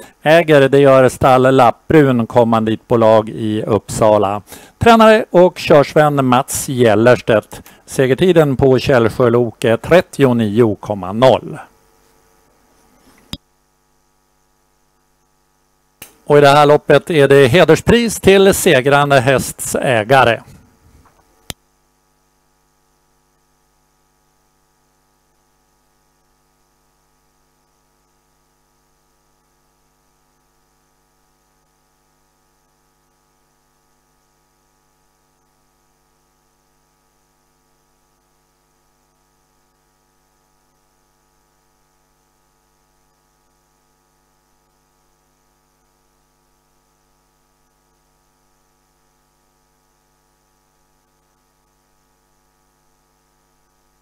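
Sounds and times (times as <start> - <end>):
faint electrical mains hum: 0.0 - 54.0
sharp click: 16.0 - 16.2.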